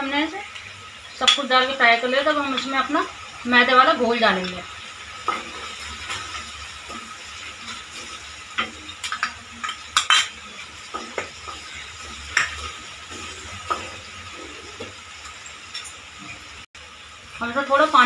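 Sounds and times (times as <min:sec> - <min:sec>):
sauce frying in a pan: 0:00.0 - 0:18.0
spoon clinking against pan: 0:08.6 - 0:10.4.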